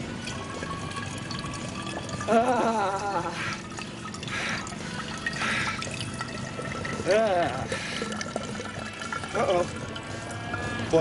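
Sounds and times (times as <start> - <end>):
urine stream into glass bottle: 0.0 - 11.0
man laughing breathily: 2.3 - 3.7.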